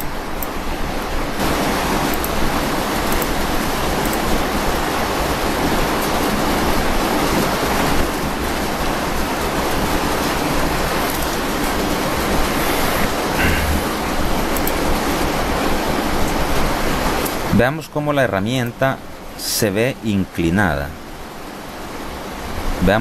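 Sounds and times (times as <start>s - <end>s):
steady rushing noise: 0.0s - 17.6s.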